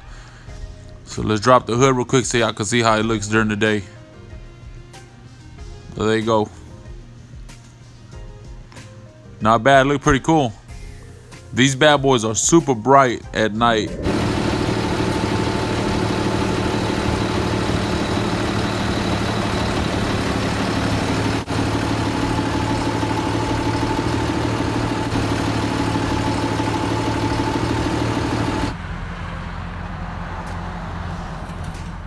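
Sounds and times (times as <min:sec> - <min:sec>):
low engine rumble: 0:13.6 - 0:32.0
truck engine idling: 0:14.0 - 0:32.0.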